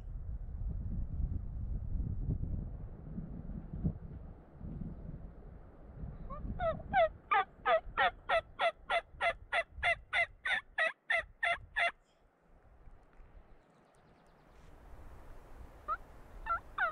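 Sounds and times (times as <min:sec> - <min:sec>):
wind rumble on microphone: 0:00.0 - 0:11.8
turkey yelping: 0:06.6 - 0:12.0, 0:15.9 - 0:16.9.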